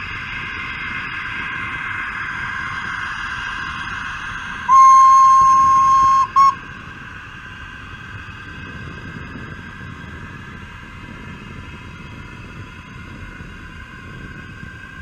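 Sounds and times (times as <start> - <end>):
model train toot: 4.7 - 6.6.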